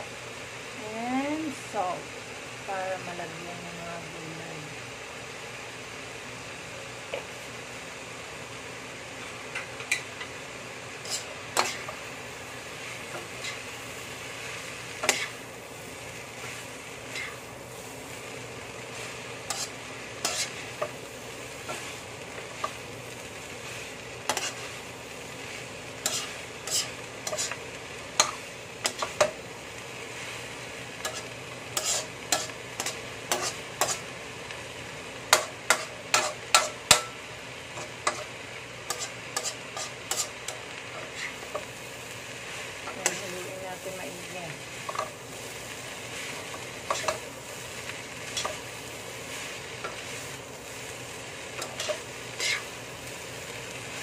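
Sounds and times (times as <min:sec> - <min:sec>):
vegetables sizzling in a wok: 0:00.0 - 0:54.0
utensils scraping and clacking on pan: 0:09.2 - 0:10.3, 0:11.0 - 0:12.1, 0:12.8 - 0:13.8, 0:14.5 - 0:15.4, 0:16.2 - 0:17.5, 0:18.9 - 0:21.0, 0:21.6 - 0:22.8, 0:23.6 - 0:24.8, 0:26.0 - 0:29.4, 0:31.0 - 0:34.1, 0:35.3 - 0:41.8, 0:42.7 - 0:52.8.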